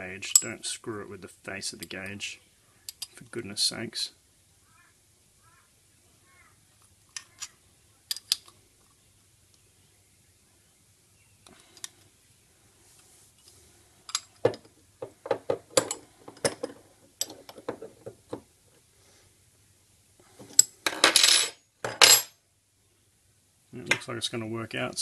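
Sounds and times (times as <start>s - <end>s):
spanners clinking on metal: 15.7s - 17.5s.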